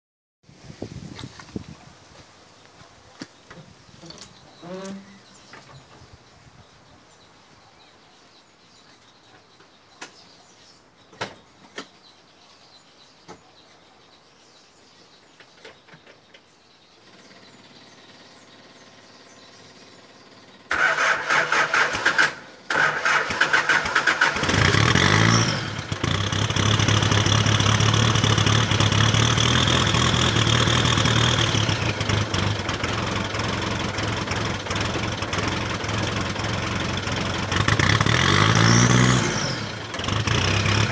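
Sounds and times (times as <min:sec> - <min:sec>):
diesel engine cranking: 0:17.0 - 0:40.9
diesel engine revving and idling: 0:17.0 - 0:40.9.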